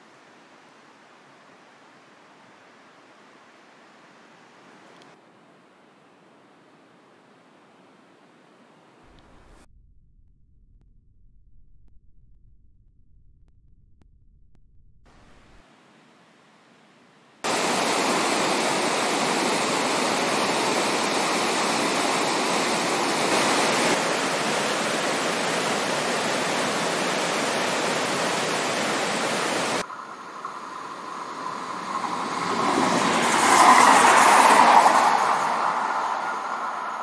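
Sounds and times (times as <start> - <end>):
steady rushing noise: 17.4 - 37.0
train passing: 29.8 - 37.0.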